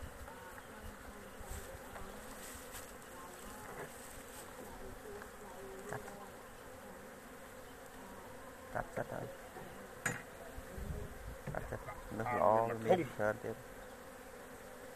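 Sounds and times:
honeybees buzzing: 0.0s - 14.9s.

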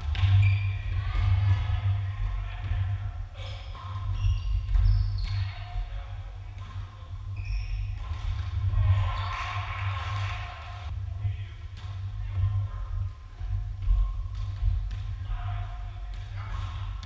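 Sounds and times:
volleyball struck and bouncing: 0.0s - 1.5s
sneakers squeaking: 0.0s - 1.9s, 3.4s - 10.4s
players' voices echoing: 0.0s - 17.0s
steady low hum: 0.0s - 17.0s.

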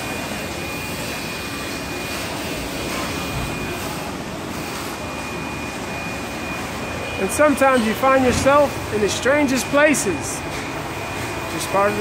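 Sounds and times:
industrial machinery roar: 0.0s - 12.0s.

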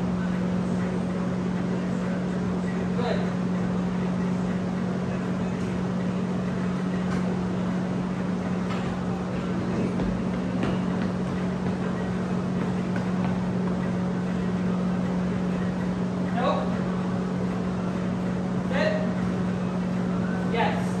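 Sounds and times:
steady low mechanical drone: 0.0s - 21.0s.

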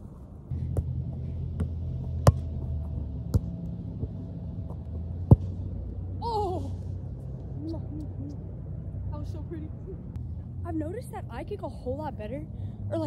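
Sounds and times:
steady low hum: 0.0s - 13.0s
soccer ball being kicked: 0.7s - 5.6s.

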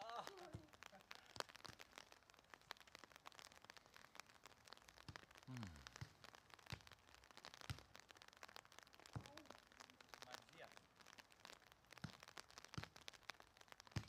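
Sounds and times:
faint crackling: 0.0s - 14.0s.

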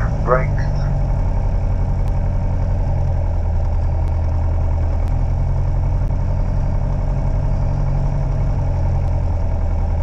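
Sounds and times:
aircraft engine low drone: 0.0s - 10.0s.

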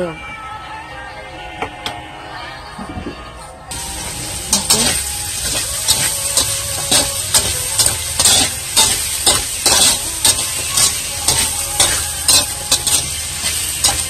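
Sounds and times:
food sizzling in oil: 3.7s - 14.0s
metal spatula scraping pan: 4.5s - 14.0s.

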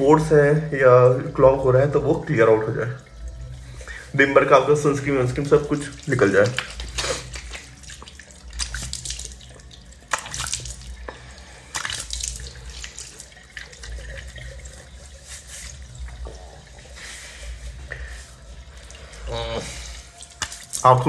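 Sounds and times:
running tap water: 0.0s - 21.0s
water splashing into basin: 1.2s - 21.0s.

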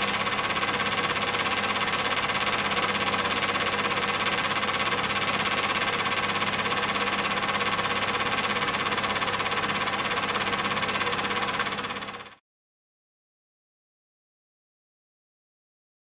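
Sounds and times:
film projector clattering: 0.0s - 12.4s.

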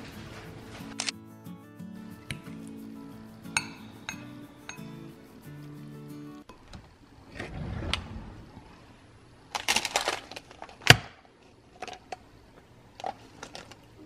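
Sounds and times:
kitchen drawer pulled open: 7.3s - 8.4s.

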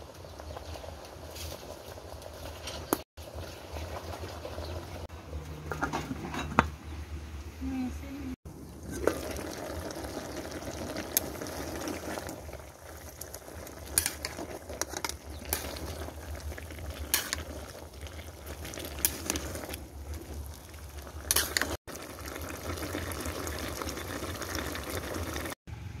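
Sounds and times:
stew bubbling in a pot: 0.0s - 5.1s, 8.5s - 25.6s
sharp clicks and pops: 13.2s - 16.4s.

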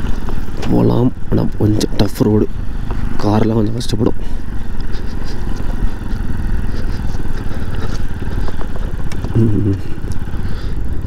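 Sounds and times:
motorcycle engine running: 0.0s - 11.0s
stones clicking and scraping: 4.7s - 9.4s.

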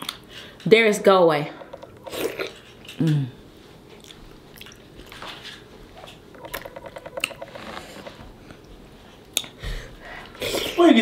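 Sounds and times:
chewing and lip smacking: 1.8s - 3.3s, 3.9s - 7.6s, 8.5s - 9.6s.

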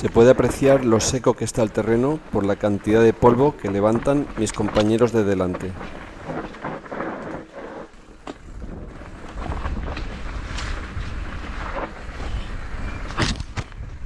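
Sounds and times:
bike tyres rolling over dirt: 0.0s - 14.0s
wind rumbling on microphone: 0.0s - 14.0s
bike knocking over bumps: 2.9s - 12.4s.

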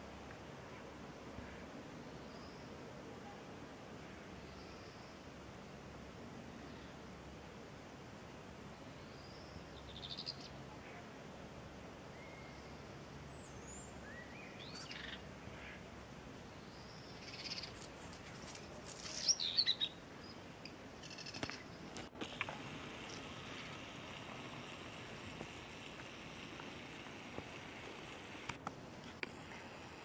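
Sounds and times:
starlings calling: 16.8s - 17.8s, 19.0s - 20.4s, 21.0s - 21.8s.

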